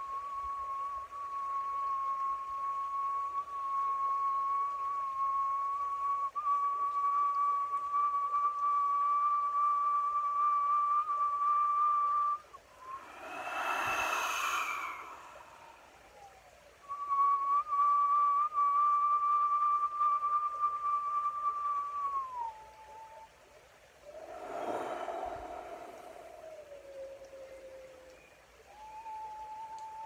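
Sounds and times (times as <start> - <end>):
man whistling a steady note: 0.0 - 30.0
breathy rush of air: 12.6 - 16.5, 24.0 - 28.0.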